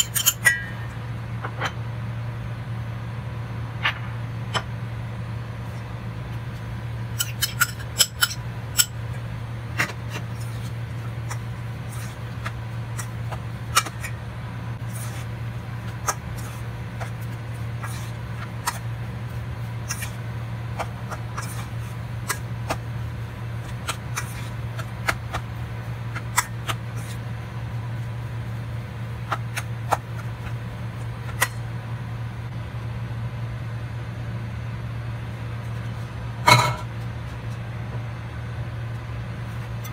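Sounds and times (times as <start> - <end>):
low hum: 0.0 - 39.9
fork scraping metal pot: 7.2 - 9.0, 19.8 - 20.2.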